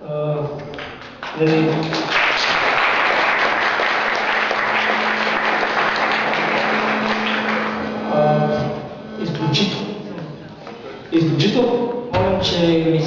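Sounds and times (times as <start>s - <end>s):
audience applauding: 0.6s - 8.2s.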